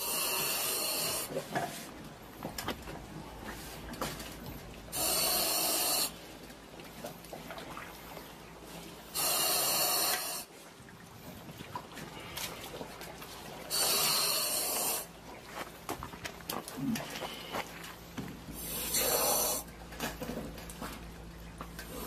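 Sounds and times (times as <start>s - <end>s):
diver hissing breaths: 13.7s - 15.1s, 18.6s - 19.6s.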